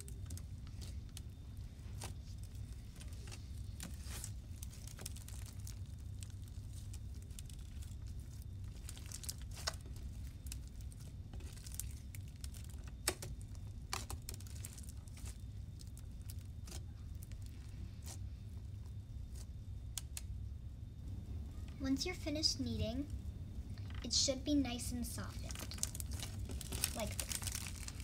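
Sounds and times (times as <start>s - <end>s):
steady low hum: 0.0s - 28.0s
slime crackling and clicking: 1.9s - 18.2s, 25.4s - 28.0s.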